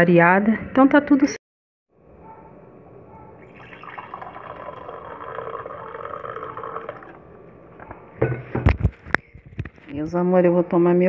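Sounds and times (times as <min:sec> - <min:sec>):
coffee pouring into a mug: 0:03.5 - 0:07.3.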